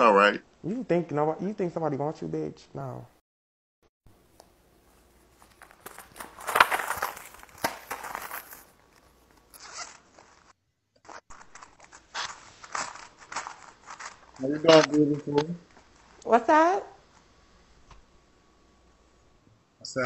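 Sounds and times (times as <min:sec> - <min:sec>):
banknotes riffled and rustling: 0:04.8 - 0:10.5, 0:11.1 - 0:16.2.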